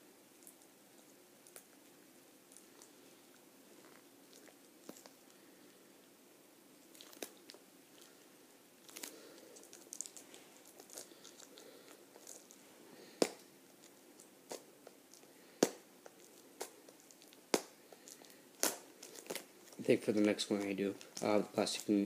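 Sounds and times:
plastic wrapping crinkling: 8.8 - 22.0.

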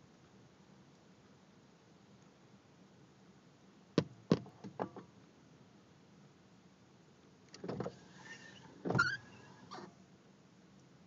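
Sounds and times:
brief squeak: 7.9 - 9.9.

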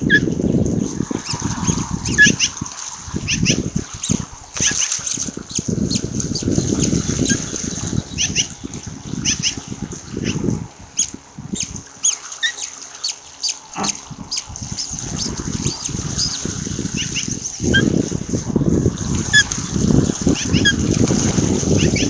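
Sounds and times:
ragged low rumble: 0.0 - 22.0
birds chirping: 1.2 - 17.9.

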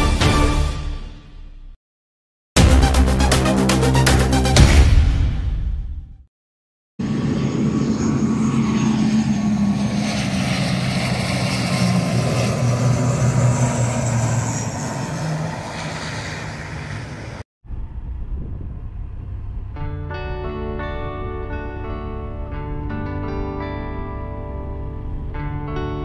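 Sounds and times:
aircraft engine droning: 7.0 - 20.0.

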